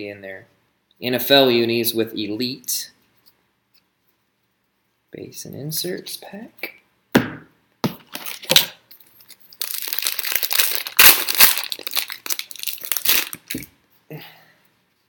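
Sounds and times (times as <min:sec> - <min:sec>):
foil wrapper crackling: 0:08.2 - 0:13.7
foil wrapper tearing: 0:08.2 - 0:13.7.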